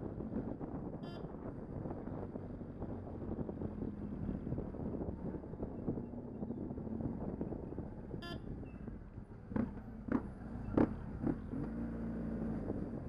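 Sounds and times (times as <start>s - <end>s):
vehicle horn toot: 1.0s - 1.3s, 8.2s - 8.5s
motorcycle engine rumbling: 5.4s - 13.0s.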